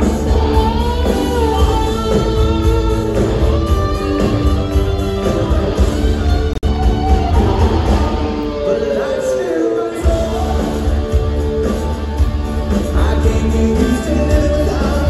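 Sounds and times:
steady bass: 0.0s - 8.7s, 10.1s - 15.0s
rock band playing live: 0.0s - 15.0s.

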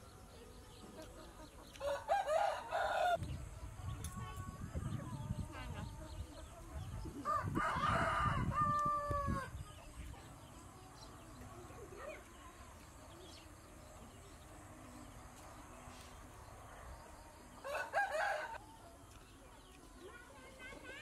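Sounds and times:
rooster crowing: 1.8s - 3.2s, 17.6s - 18.6s.

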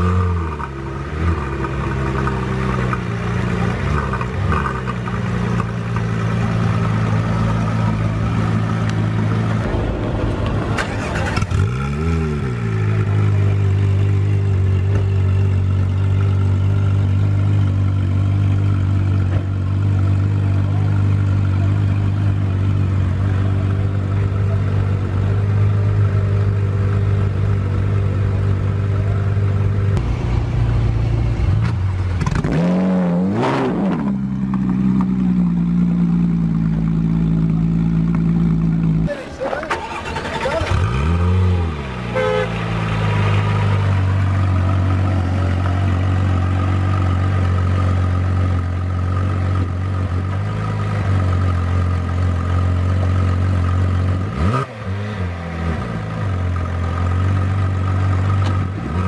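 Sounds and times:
car engine idling with throttle blips: 12.4s - 32.4s, 33.4s - 59.0s.

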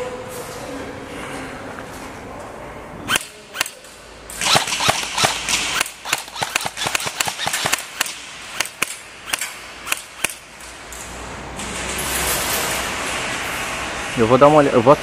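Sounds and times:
airsoft guns firing: 3.1s - 10.6s.

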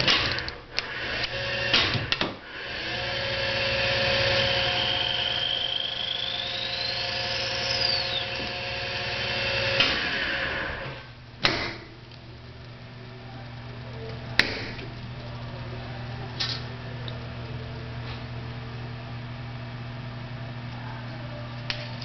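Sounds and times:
lathe spindle whirring: 0.1s - 11.1s
cutting tool whine: 0.8s - 11.1s.

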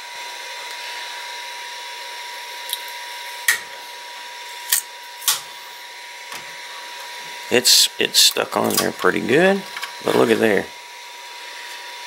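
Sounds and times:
steady hum: 0.0s - 12.0s
thin steady whine: 0.0s - 12.0s.

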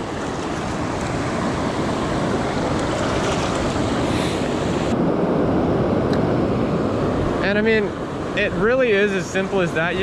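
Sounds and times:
ocean surf washing: 0.0s - 10.0s.

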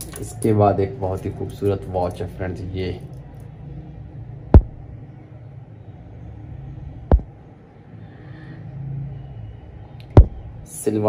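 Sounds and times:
steady low rumble: 1.3s - 7.9s, 9.1s - 10.7s
dull thumps: 4.6s - 4.8s, 7.1s - 7.3s, 10.2s - 10.4s.

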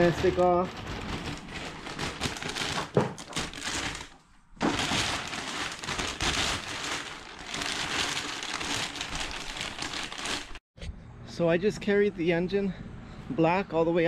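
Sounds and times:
plastic sheeting crinkling: 0.0s - 10.6s.

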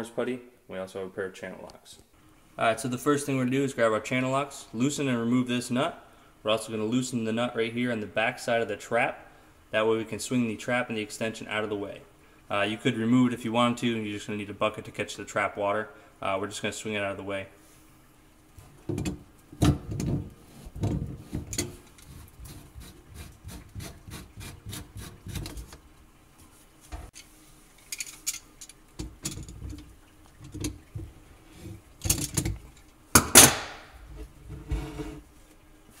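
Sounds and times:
plastic drain pipes scraping: 18.6s - 27.2s, 28.9s - 35.3s.

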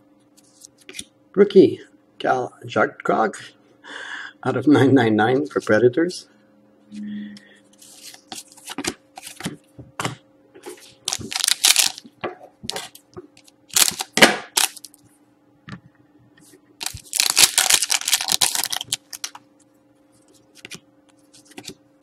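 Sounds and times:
cards shuffling: 7.8s - 9.6s, 10.6s - 12.1s, 13.7s - 15.0s, 16.8s - 19.4s, 20.2s - 21.8s
foil pack crinkling: 10.8s - 12.1s, 13.7s - 15.0s, 16.8s - 19.4s.

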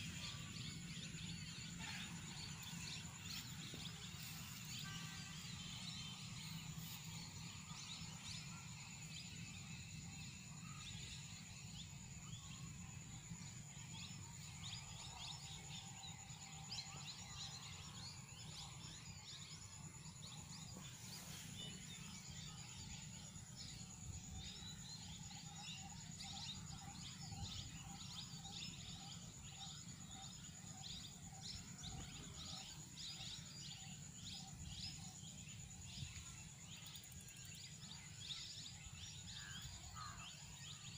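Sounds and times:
small birds chirping: 0.0s - 18.7s
high-pitched insect drone: 0.0s - 40.9s.

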